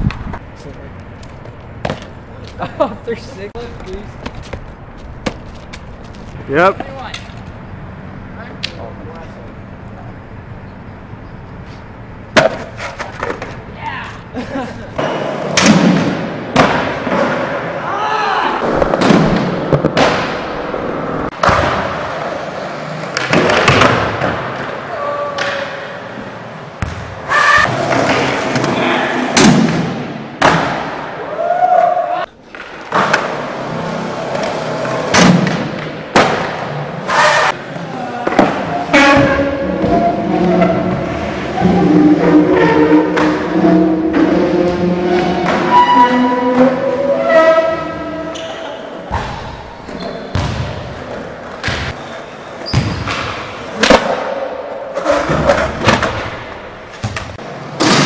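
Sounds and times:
skateboard slaps and landings: 12.3s - 13.6s, 15.0s - 17.7s, 21.3s - 22.4s, 23.0s - 24.8s, 32.5s - 37.5s
skateboard wheels rolling: 14.9s - 29.4s, 32.4s - 48.4s.

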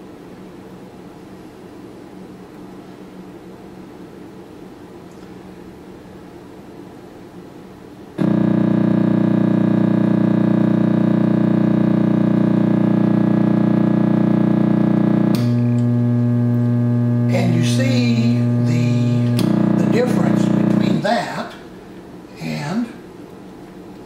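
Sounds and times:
loudspeaker buzzing: 8.2s - 21.6s.

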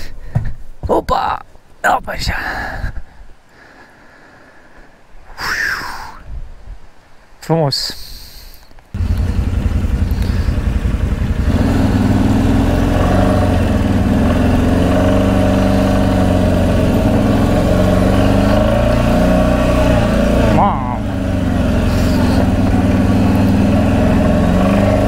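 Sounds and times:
quad bike engine revving: 9.0s - 25.0s.

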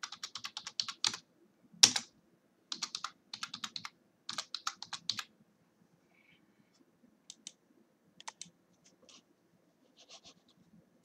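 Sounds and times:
typing on computer keyboard: 0.0s - 1.2s, 1.8s - 2.1s, 2.7s - 5.3s.

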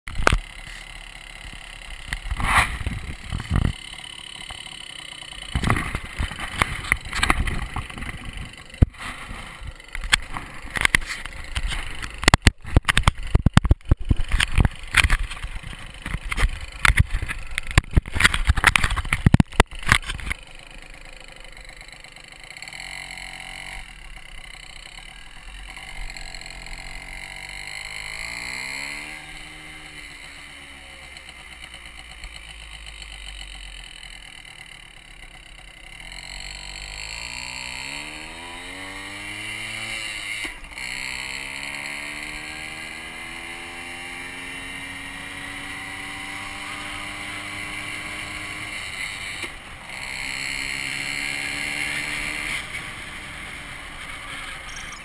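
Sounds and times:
two-stroke mini-bike engine: 0.1s - 55.0s.

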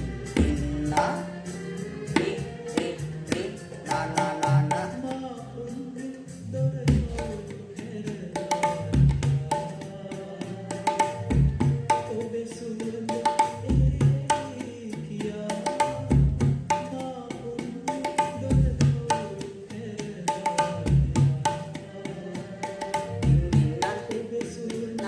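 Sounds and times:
tabla deep bass stroke: 0.0s - 5.6s, 6.5s - 25.0s
tabla ringing strokes: 2.1s - 5.1s.

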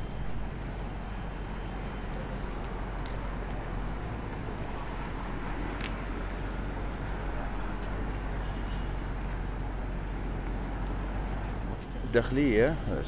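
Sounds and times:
motor vehicles rumbling: 0.0s - 13.0s.

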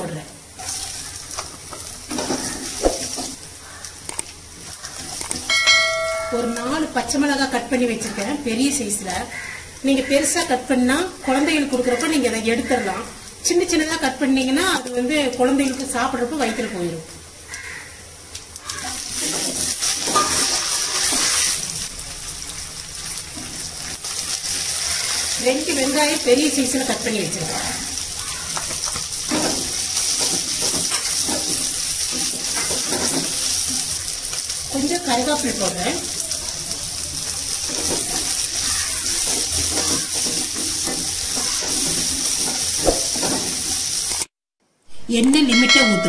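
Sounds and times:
chillies sizzling in hot oil: 0.0s - 44.3s
wooden spatula scraping a pan: 19.1s - 21.6s, 28.6s - 33.6s.

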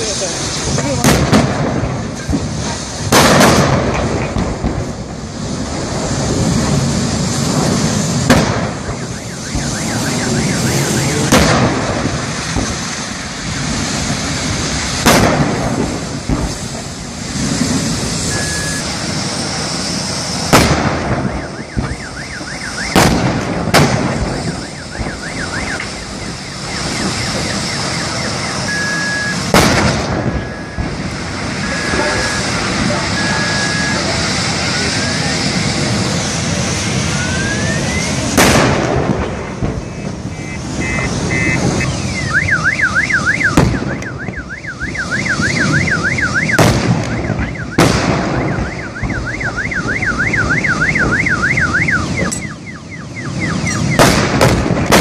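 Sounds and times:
gas cylinders exploding: 0.0s - 52.6s, 53.4s - 55.0s
continuous fire noise: 0.0s - 55.0s.

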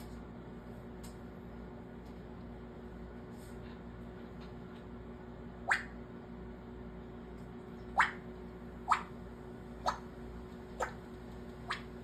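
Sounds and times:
parrot making popping noises: 5.7s - 6.0s, 8.0s - 8.2s, 8.9s - 9.1s.

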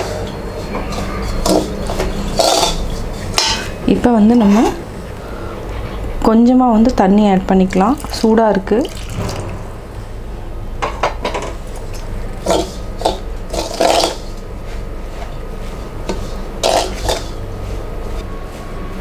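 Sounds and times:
metal spoon scraping steel bowl: 0.0s - 3.8s, 16.1s - 17.4s
steady low hum: 0.0s - 19.0s.

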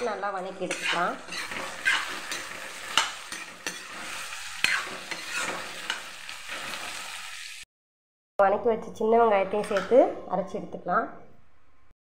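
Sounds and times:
utensil scraping a pan: 0.0s - 7.2s
food sizzling in oil: 0.0s - 7.7s.

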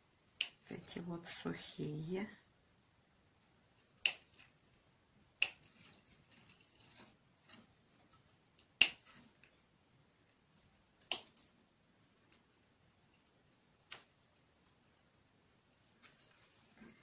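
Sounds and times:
scissors snipping stems: 0.4s - 0.7s, 4.0s - 4.5s, 8.6s - 9.3s, 11.0s - 11.5s.

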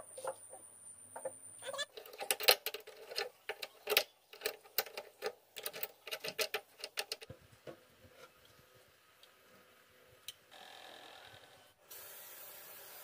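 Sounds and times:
clicks and knocks of tools: 1.9s - 7.4s.

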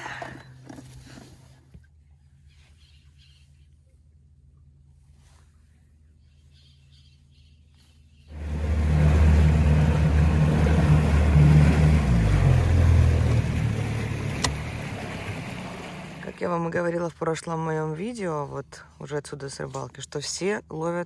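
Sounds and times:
motor boat engine drone: 8.3s - 16.6s.

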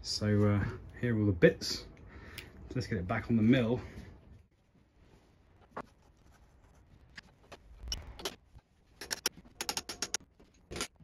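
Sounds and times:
metal parts clinking and clicking: 9.0s - 11.0s.

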